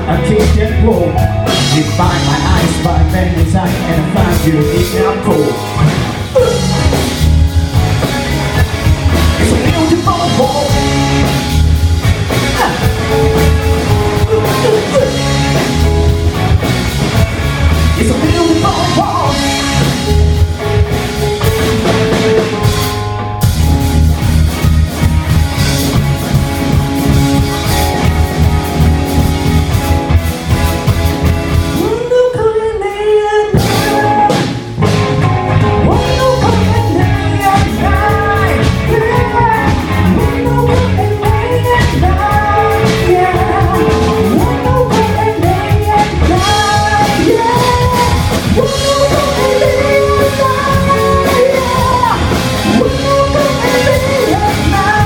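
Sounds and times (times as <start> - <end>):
person singing: 0.0 - 7.0, 8.0 - 11.5, 12.3 - 16.2, 17.8 - 20.4, 31.7 - 34.9, 35.6 - 55.0
drum kit beat: 0.0 - 32.2, 33.0 - 55.0
guitars and bass: 0.0 - 55.0.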